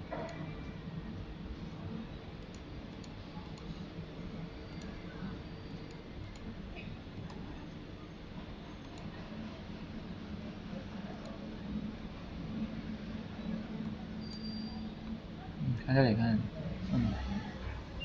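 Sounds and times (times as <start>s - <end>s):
low background hum: 0.0s - 18.0s.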